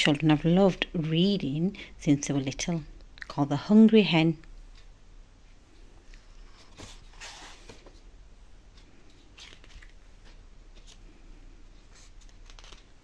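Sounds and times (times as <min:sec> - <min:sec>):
book pages turning: 0:08.7 - 0:11.2, 0:11.8 - 0:13.0.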